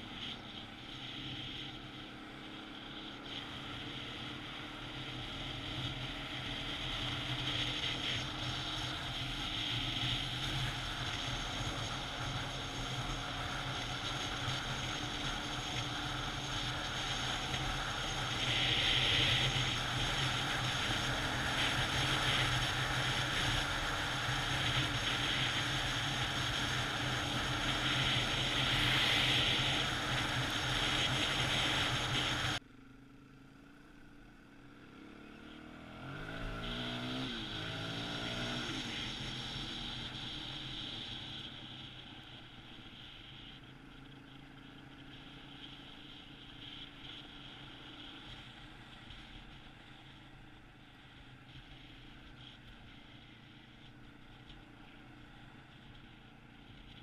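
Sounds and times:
motorcycle engine drone: 0.0 - 57.0
motorcycle engine revving: 0.0 - 57.0
loud wind noise: 14.3 - 32.6.

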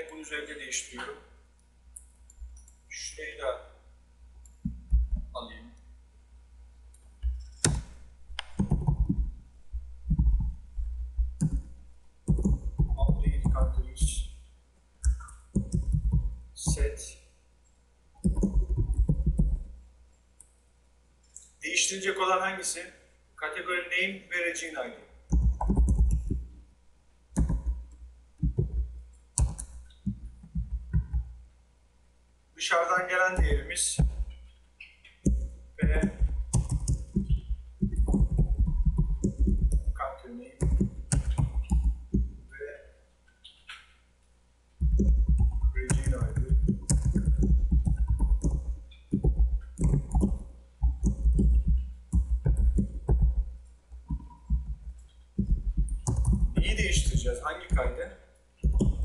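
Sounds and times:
computer keyboard typing: 7.2 - 14.4, 15.0 - 17.0, 18.2 - 19.8, 25.3 - 26.6, 27.4 - 31.3, 33.4 - 34.4, 35.1 - 42.4, 44.8 - 59.0.

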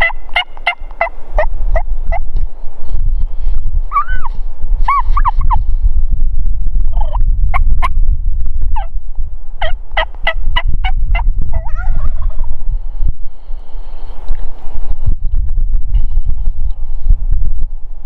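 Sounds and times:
wild turkey gobbling: 0.0 - 1.9, 9.6 - 12.1
steady low rumble: 0.0 - 18.0.

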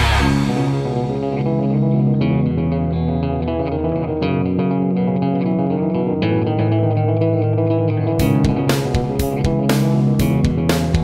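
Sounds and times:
guitar-led instrumental music: 0.0 - 11.0.

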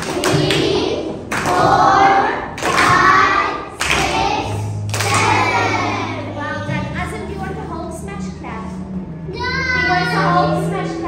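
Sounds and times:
children's excited voices: 0.0 - 6.7, 9.3 - 11.0.

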